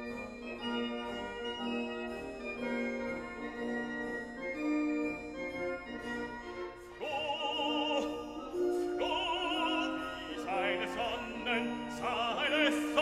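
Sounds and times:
operatic voice singing: 7.0s - 13.0s.

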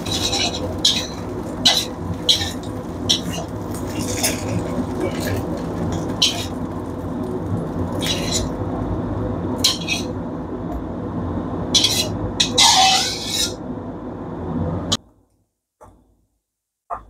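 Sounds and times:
metal spatula scraping a wok: 0.0s - 4.5s, 8.0s - 8.5s, 9.7s - 10.1s, 11.8s - 13.6s
steady low background hum: 0.0s - 16.3s.

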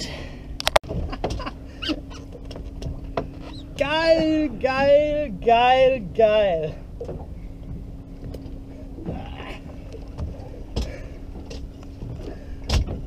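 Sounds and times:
boat engine idling: 0.0s - 13.0s
faint knocks on boat: 10.1s - 13.0s.

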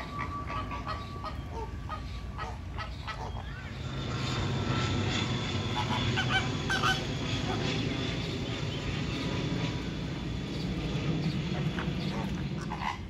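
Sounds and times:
flamingos chattering: 0.0s - 3.8s, 5.7s - 7.6s, 11.2s - 13.0s
high flamingo calls: 0.0s - 3.8s, 5.7s - 7.6s, 11.5s - 13.0s.

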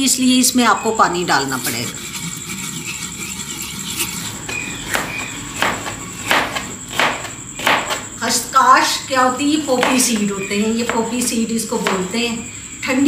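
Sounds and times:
pestle grinding in mortar: 1.4s - 8.2s, 9.6s - 12.1s.

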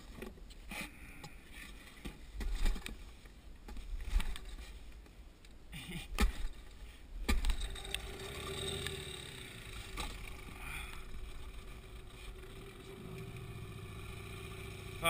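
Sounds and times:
outboard motor idling: 7.5s - 15.0s.

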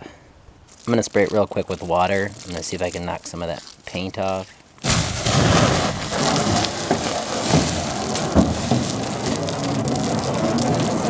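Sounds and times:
water flashing to steam: 4.9s - 11.0s
water spraying on metal: 4.9s - 11.0s.

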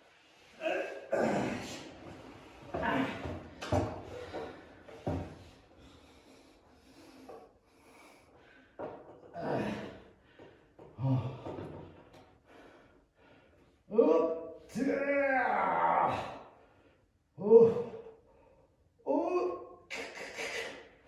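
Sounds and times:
man breathing hard: 3.2s - 13.8s.

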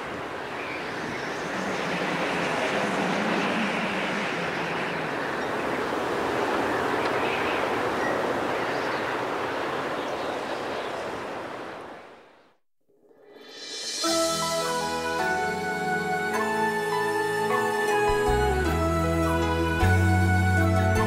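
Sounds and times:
rushing water and air: 0.0s - 19.4s
music with held notes: 13.7s - 21.0s.

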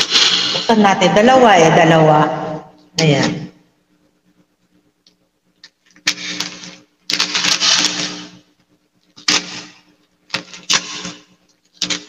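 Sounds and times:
wrapping paper tearing and crinkling: 5.8s - 8.4s.

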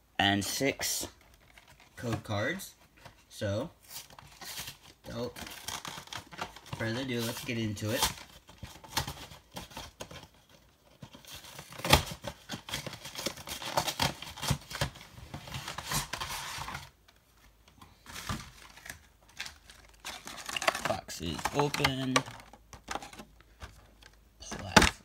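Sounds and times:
plastic shrink-wrap crinkling and tearing: 18.1s - 22.3s.

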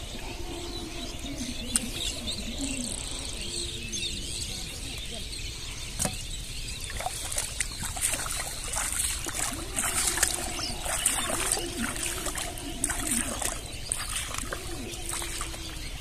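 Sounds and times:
bare feet splashing through water: 6.8s - 16.0s.

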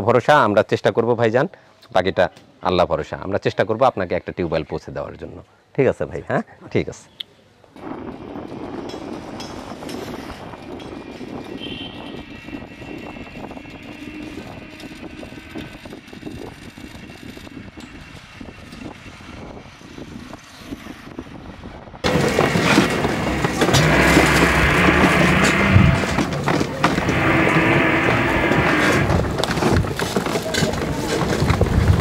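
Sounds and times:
road and wind noise: 7.5s - 32.0s.

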